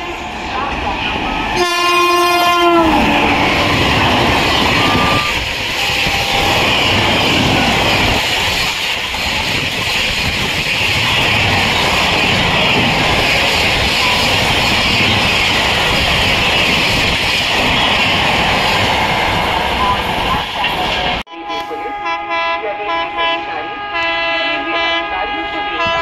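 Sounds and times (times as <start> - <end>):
train coaches rumbling past: 0.0 - 26.0
train horn dropping in pitch: 1.6 - 3.2, 21.3 - 26.0.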